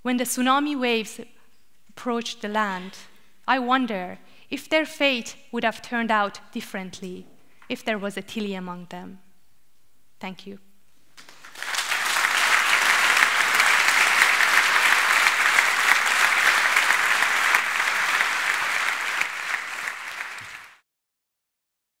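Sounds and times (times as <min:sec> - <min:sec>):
audience applauding: 0:11.2 - 0:20.8.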